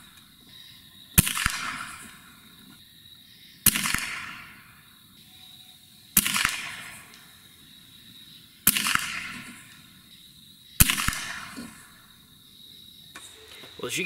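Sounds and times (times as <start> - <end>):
cricket trill: 0.0 - 14.0
air rifle shot crack: 1.2 - 2.4, 3.6 - 4.7, 6.2 - 7.3, 8.6 - 9.9, 10.8 - 12.1.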